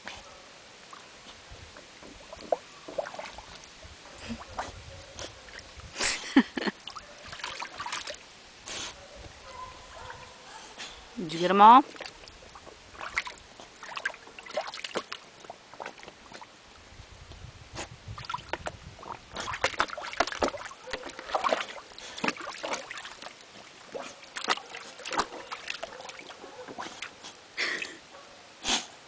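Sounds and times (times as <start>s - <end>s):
dog splashing in shallow water: 2.1s - 3.7s, 6.7s - 8.3s, 11.5s - 16.6s, 18.2s - 27.3s.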